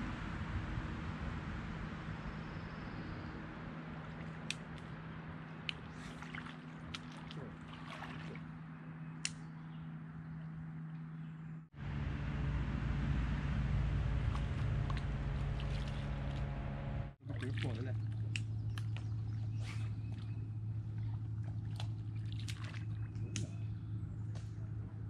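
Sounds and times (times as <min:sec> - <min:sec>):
steady low hum: 0:00.0 - 0:25.0
water squishing and trickling: 0:03.3 - 0:09.4, 0:13.6 - 0:25.0.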